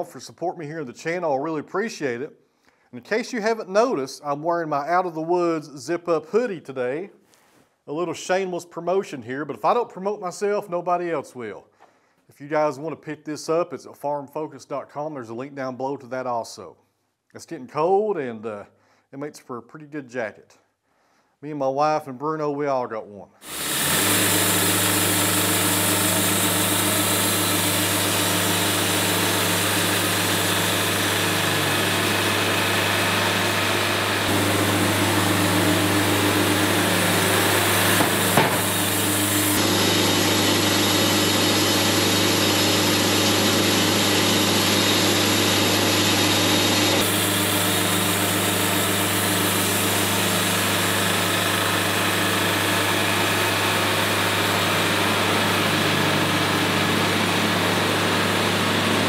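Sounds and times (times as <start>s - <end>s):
band blade cutting log: 23.4s - 39.6s, 47.0s - 59.0s
sawmill engine humming: 23.4s - 59.0s.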